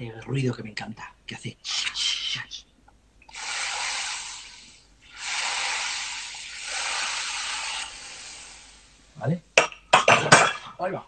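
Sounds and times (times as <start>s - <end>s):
broth sizzling in hot oil: 3.3s - 9.0s.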